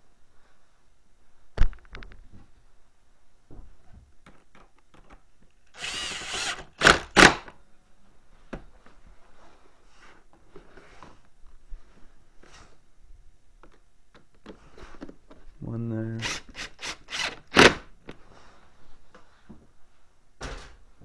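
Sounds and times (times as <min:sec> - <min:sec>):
power driver spinning: 0:05.7 - 0:07.0.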